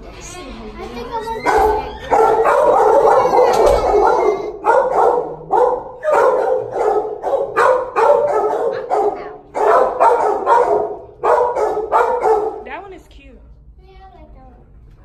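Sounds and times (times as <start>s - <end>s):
dogs barking: 1.4s - 12.9s.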